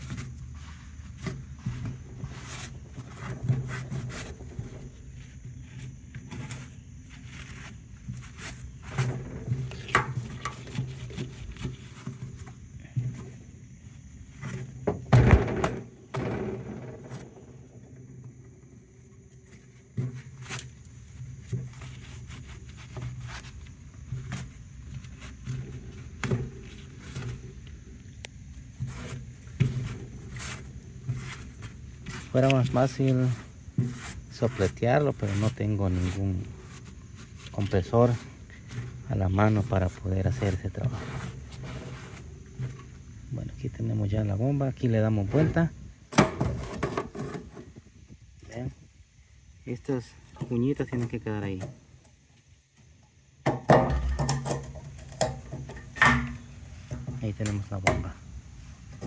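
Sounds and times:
rubbing and scraping: 0.0 - 45.6, 46.3 - 47.9.

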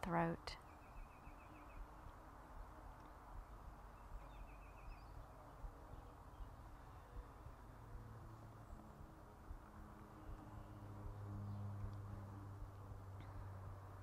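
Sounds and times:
bird chirping: 0.5 - 2.3, 2.9 - 8.0.

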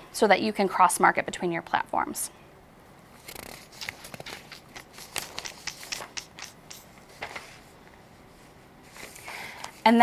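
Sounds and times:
paper rustling and crackling: 3.2 - 7.8.

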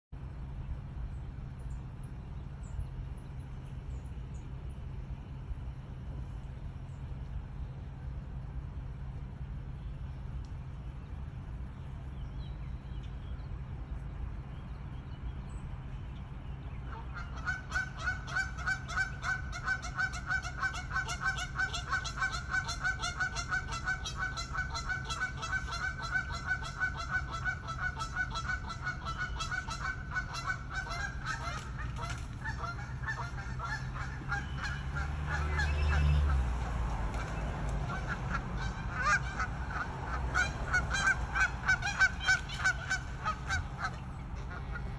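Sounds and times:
steady low rumble: 0.1 - 44.9
geese honking: 16.9 - 44.9.

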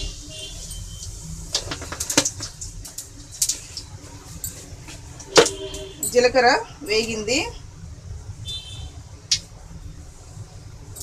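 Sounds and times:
seeds spluttering in hot oil: 0.0 - 6.0.

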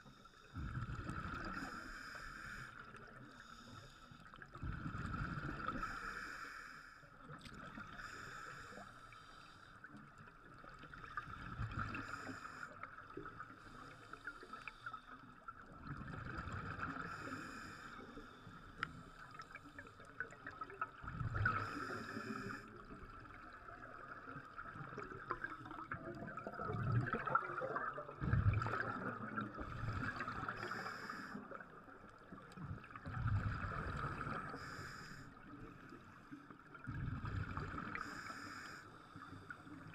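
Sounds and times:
bubbles gurgling underwater: 4.6 - 5.8, 15.7 - 17.2, 20.2 - 21.8, 22.8 - 30.8, 32.4 - 34.6, 36.7 - 38.0.

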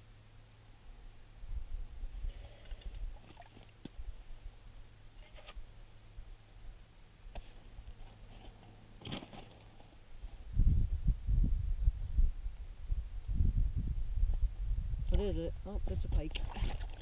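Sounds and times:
low steady rumble: 0.0 - 17.0
faint scrapes: 5.2 - 5.6.

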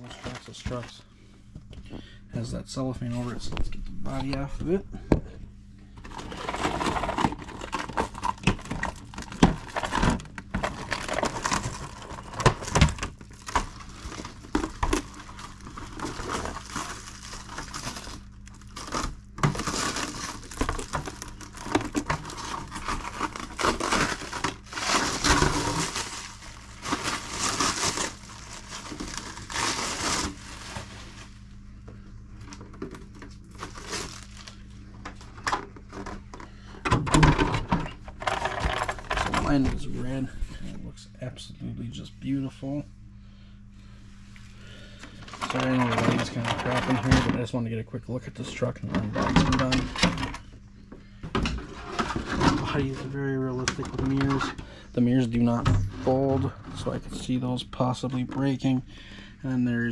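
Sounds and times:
plastic wrap crinkling and tearing: 6.1 - 31.4, 32.4 - 34.6.

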